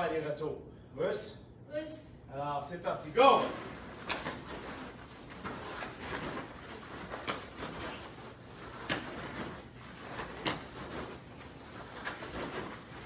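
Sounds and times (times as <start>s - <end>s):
bare feet slapping on mats: 3.5s - 13.0s.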